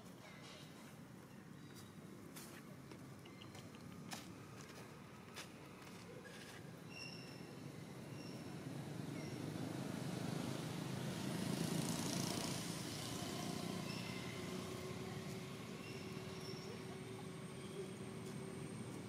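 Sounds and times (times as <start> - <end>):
motor vehicle passing by: 7.7 - 19.0.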